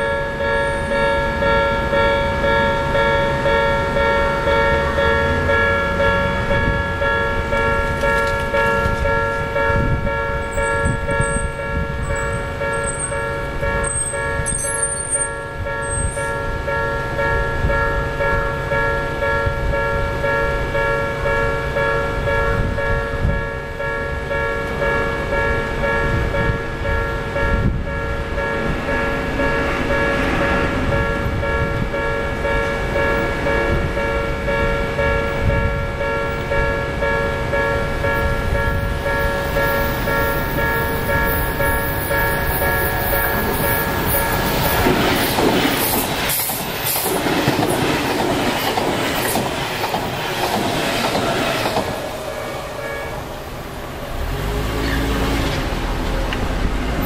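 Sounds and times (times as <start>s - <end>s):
level-crossing warning bell: 0.0s - 54.7s
train wheels rushing on rail: 0.0s - 57.0s
clatter over rail joints: 4.8s - 9.9s, 43.3s - 52.1s.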